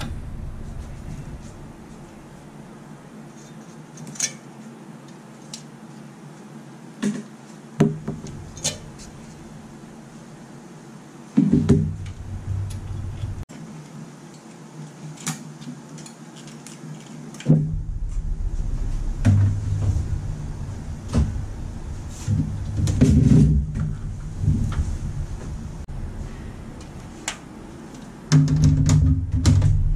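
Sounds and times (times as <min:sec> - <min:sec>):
thumps and knocks on computer case: 0:11.4 - 0:12.6.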